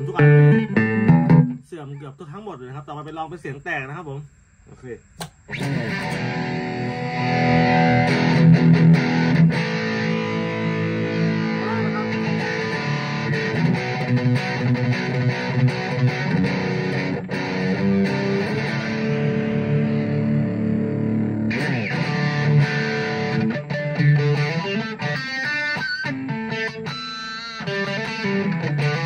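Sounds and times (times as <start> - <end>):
distorted electric guitar: 0.0 - 2.0, 5.2 - 29.0.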